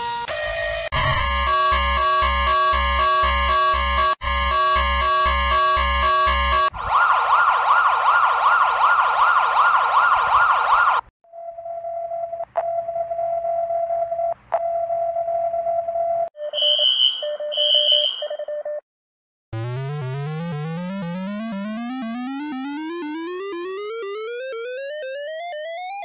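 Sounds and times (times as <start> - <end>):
warbling synthesized siren: 0.2 - 11.0, 19.6 - 26.0
chiptune music: 19.6 - 26.0.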